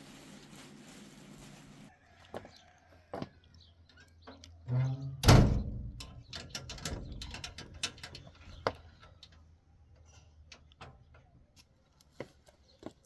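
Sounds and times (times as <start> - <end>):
door latch clicking and rattling: 5.2 - 8.2.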